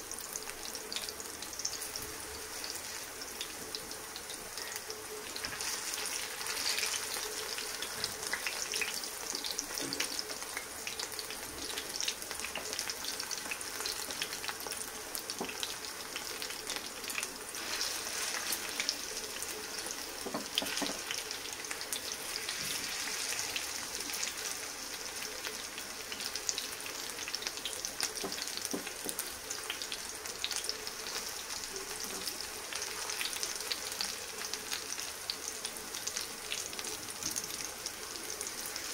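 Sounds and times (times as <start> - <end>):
patties sizzling in hot oil: 0.0 - 38.9
spatula scraping and tapping pan: 20.2 - 21.1.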